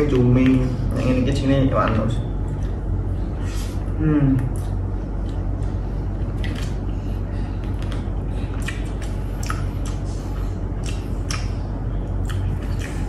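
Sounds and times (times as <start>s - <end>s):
steady low hum: 0.0s - 13.0s
chewing: 4.4s - 13.0s
fingers squishing through food: 7.6s - 13.0s.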